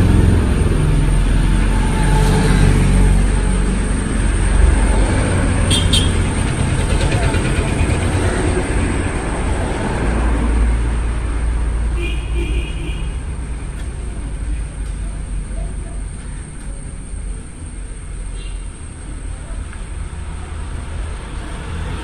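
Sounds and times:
low outdoor rumble: 0.0 - 11.9.

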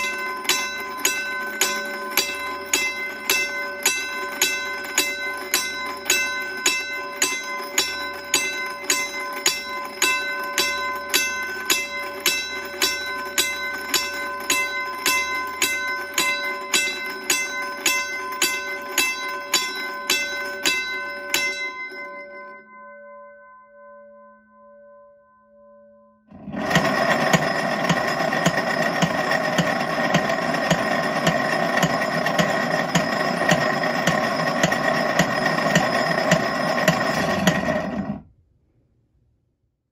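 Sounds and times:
faint motor hum: 26.3 - 38.3
rough mechanical running sound: 26.4 - 38.2.

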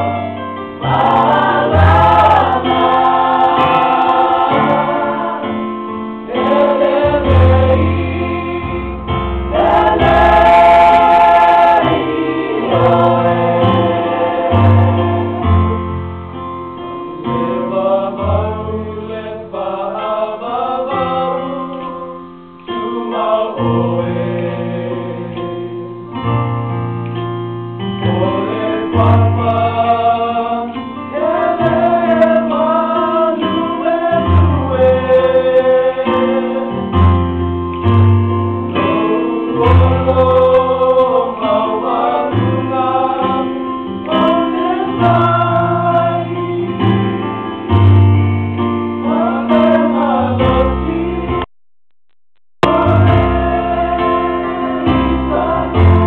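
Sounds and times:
choir singing a hymn: 0.0 - 25.9, 28.0 - 37.1, 38.6 - 48.0, 48.9 - 51.5, 52.6 - 56.0.

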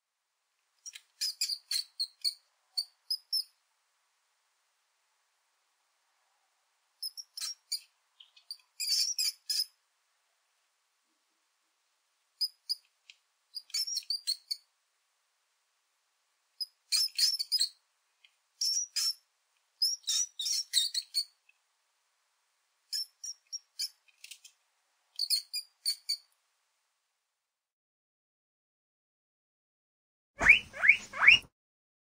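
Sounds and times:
mouse squeaks: 0.8 - 3.6, 7.0 - 9.8, 12.4 - 12.8, 13.5 - 14.7, 16.6 - 17.8, 18.6 - 19.2, 19.8 - 21.4, 22.9 - 24.5, 25.2 - 26.3, 30.4 - 31.5.

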